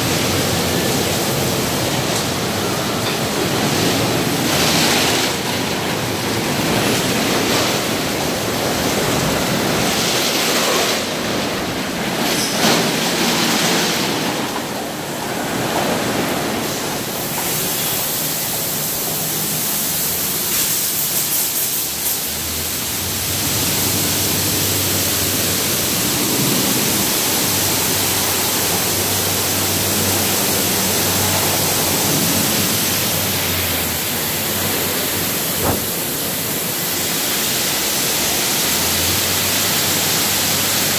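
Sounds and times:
water rushing in car wash: 0:00.0 - 0:40.9
hiss of spray: 0:16.6 - 0:40.9.

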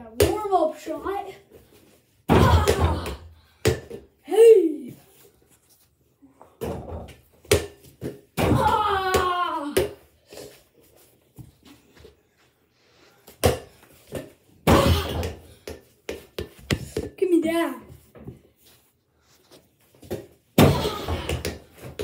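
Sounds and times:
person shouting: 0:02.3 - 0:03.2, 0:08.4 - 0:09.8.

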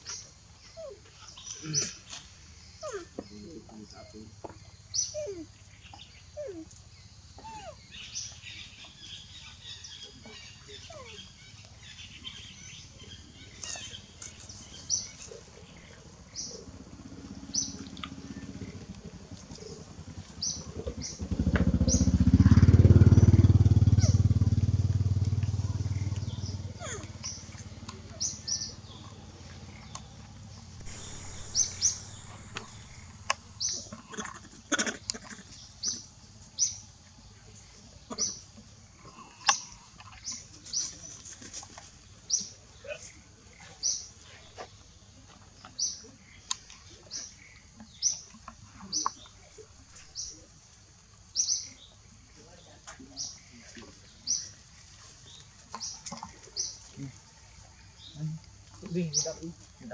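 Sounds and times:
birds chirping: 0:00.0 - 0:22.2, 0:25.8 - 0:41.0
low pulsing engine hum: 0:11.2 - 0:38.0
rustling in dry leaves: 0:30.8 - 0:34.2.

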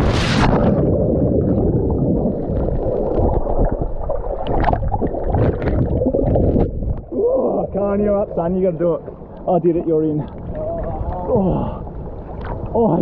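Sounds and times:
person plunging into water: 0:00.0 - 0:07.2
muffled underwater bubbling: 0:00.0 - 0:07.8.

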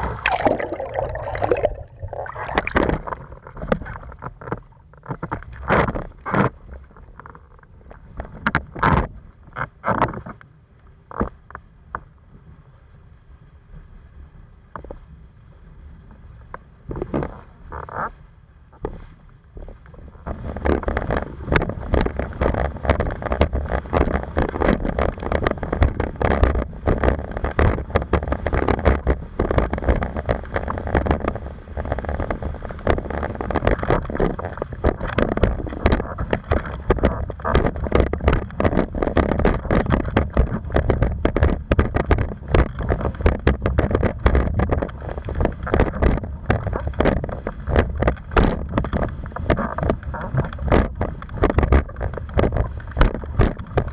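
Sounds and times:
water slapping hull: 0:00.0 - 0:07.1, 0:19.7 - 0:53.9
water rushing against board: 0:00.0 - 0:07.4, 0:18.8 - 0:53.9
wind buffeting microphone: 0:20.0 - 0:53.9.

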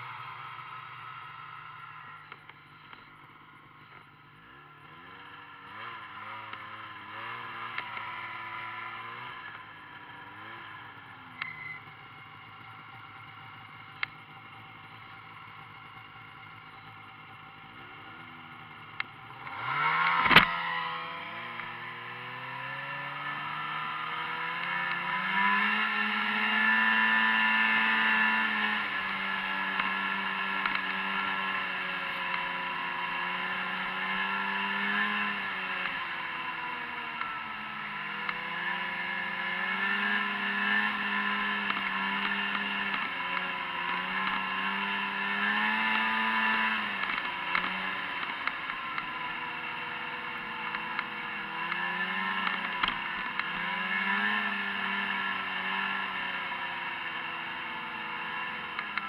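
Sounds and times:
snowmobile engines running: 0:00.0 - 0:59.0.

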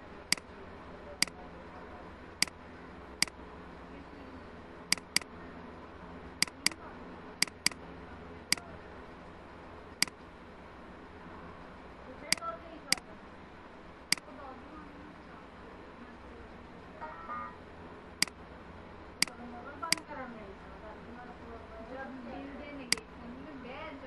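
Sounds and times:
faint background hum: 0:00.0 - 0:24.0
mouse button clicking: 0:04.9 - 0:05.3, 0:06.4 - 0:06.8, 0:07.4 - 0:07.8.

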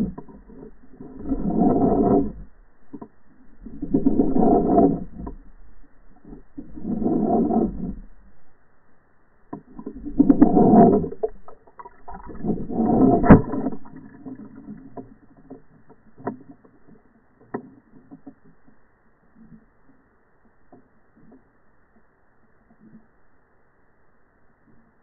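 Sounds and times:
faint clicks: 0:09.4 - 0:23.3.

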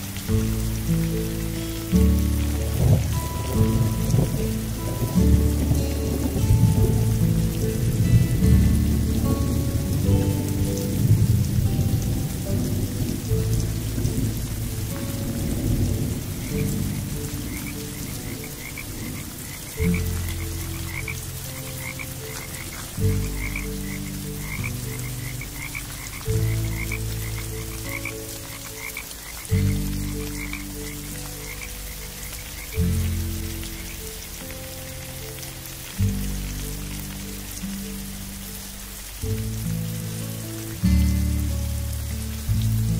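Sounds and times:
rain hiss: 0:00.0 - 0:42.9
soft music with low chords: 0:00.0 - 0:42.9
frogs croaking: 0:13.0 - 0:35.8.

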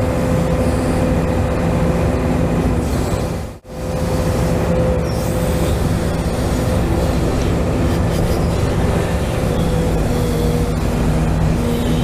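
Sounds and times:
hydraulic pump humming: 0:02.6 - 0:12.0.

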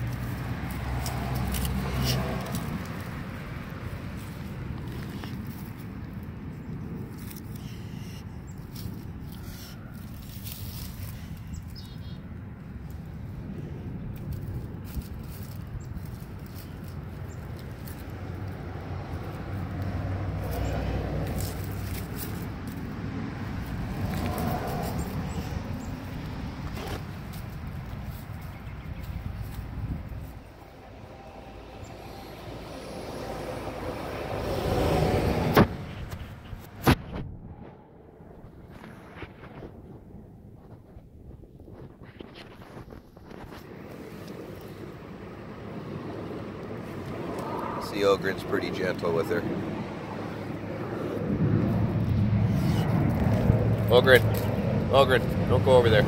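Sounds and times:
truck driving past: 0:00.0 - 0:04.6, 0:29.4 - 0:38.4, 0:43.6 - 0:56.0
puppy chewing stick in leaves: 0:00.0 - 0:35.3, 0:42.5 - 0:56.0
vehicle passing: 0:00.0 - 0:40.8, 0:43.2 - 0:56.0
low street rumble: 0:00.0 - 0:56.0.

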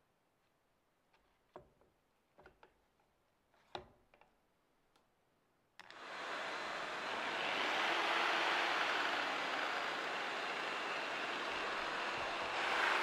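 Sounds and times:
hand handling clicks and knocks: 0:01.1 - 0:05.1
machine running with rushing whir: 0:06.0 - 0:13.0.

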